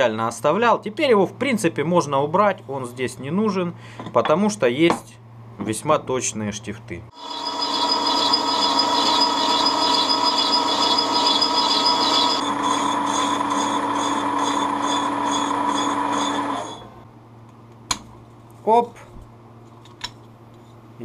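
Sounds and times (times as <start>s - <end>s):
metal lathe humming: 7.1s - 17.1s
pulsing high whine: 7.1s - 17.1s.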